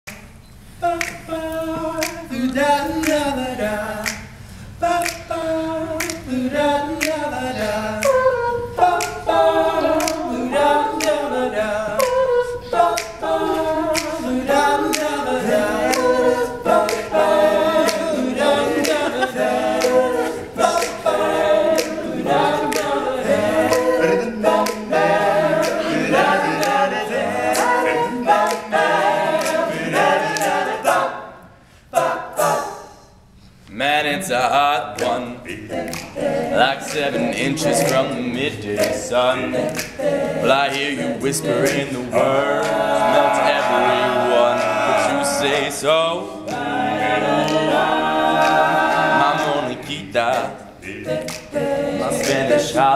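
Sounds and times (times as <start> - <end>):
male a cappella harmony singing: 0.8 - 33.1, 33.7 - 52.9.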